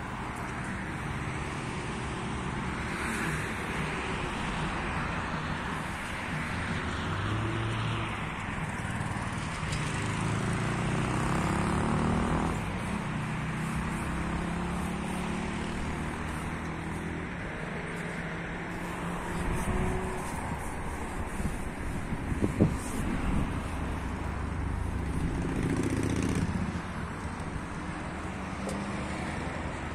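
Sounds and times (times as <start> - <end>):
steady traffic noise: 0.0 - 29.9
vehicle engine passing: 6.5 - 29.9.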